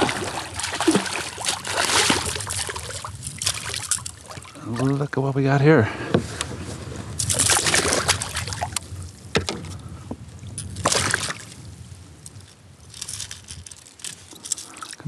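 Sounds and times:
fish splashing in a net: 0.0 - 4.6, 7.2 - 8.8.

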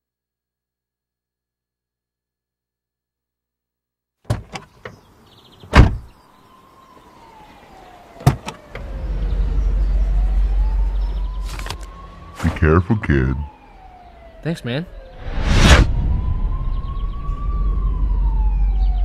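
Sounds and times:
car doors slamming: 5.7 - 6.2, 8.2 - 8.8
faint siren wailing: 6.3 - 19.0
car engine rumbling: 8.3 - 12.8.

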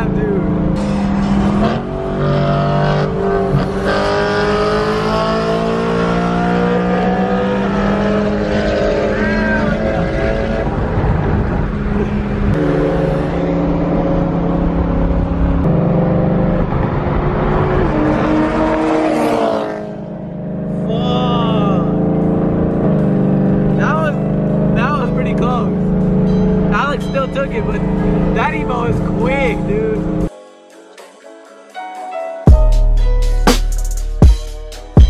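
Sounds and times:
car engine accelerating: 0.0 - 30.3
road noise: 0.0 - 30.3.

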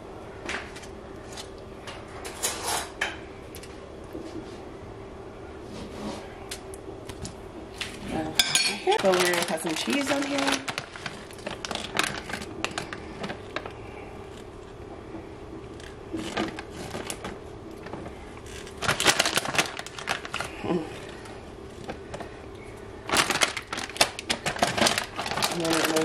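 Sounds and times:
steady faint hum: 0.0 - 26.0
plastic bag crinkling: 8.8 - 14.7, 15.7 - 22.4, 23.0 - 26.0.

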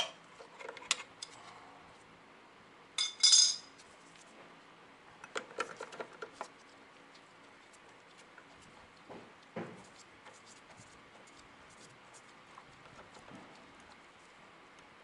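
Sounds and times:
metal tool clinking: 3.0 - 3.7.

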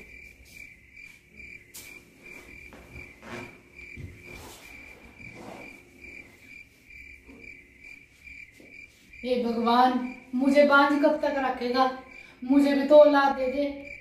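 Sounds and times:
rustles and knocks of people moving: 0.0 - 9.2
cricket chirping: 0.0 - 14.0.

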